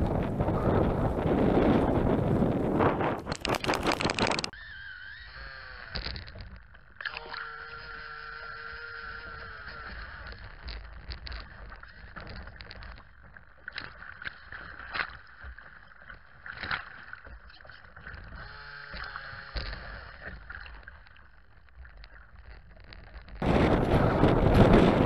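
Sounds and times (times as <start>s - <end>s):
model boat motor: 3.6s - 12.2s, 17.4s - 21.1s.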